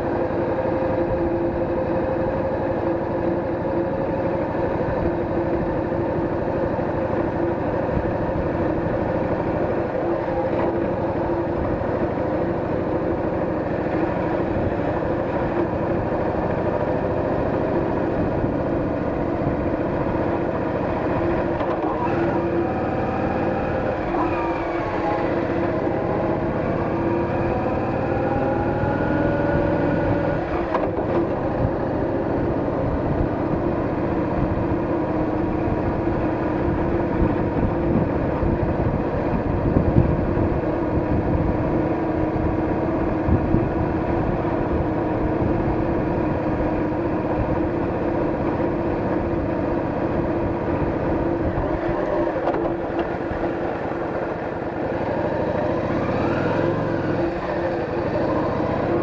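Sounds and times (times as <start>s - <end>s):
motorcycle engine rumbling: 31.0s - 59.0s.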